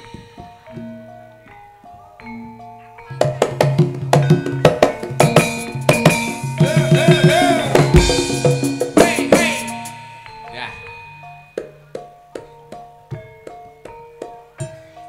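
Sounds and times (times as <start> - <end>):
gamelan ensemble playing: 0.0 - 15.0
rapid drum: 3.2 - 10.0.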